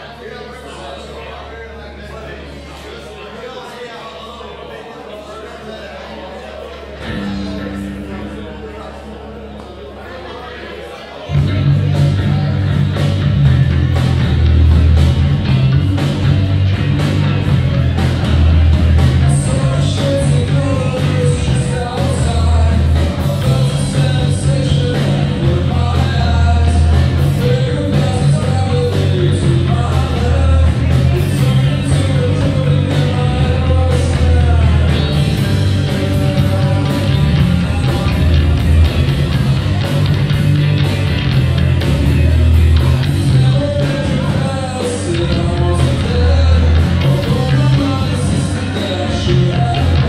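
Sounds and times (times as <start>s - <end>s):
heavy bass: 6.9s - 10.5s, 11.2s - 50.0s
live rock band playing: 7.0s - 9.6s, 11.3s - 50.0s
person singing: 16.0s - 41.3s, 42.2s - 50.0s.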